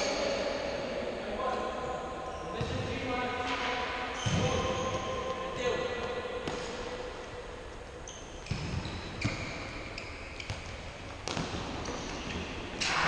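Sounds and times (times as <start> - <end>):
sneakers squeaking on floor: 2.2 - 12.9
ball kicked and bouncing: 6.0 - 6.8, 8.4 - 9.6, 10.4 - 12.5.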